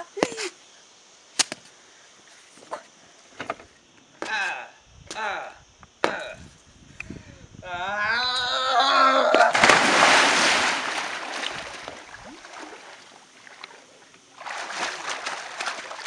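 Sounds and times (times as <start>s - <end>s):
big splash into pool: 9.5s - 13.7s, 14.4s - 16.0s
swimming strokes splashing: 9.5s - 16.0s.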